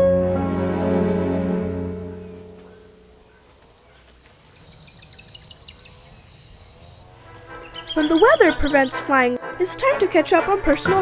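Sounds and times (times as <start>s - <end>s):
soft background music: 0.0s - 3.3s, 7.0s - 11.0s
high-pitched insect trill: 4.2s - 7.0s.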